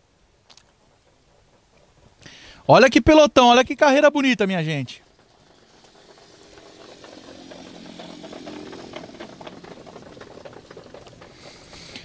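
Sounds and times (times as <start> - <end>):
light rattling and ticks: 0.1 - 12.0
vehicle engine running: 4.4 - 12.0.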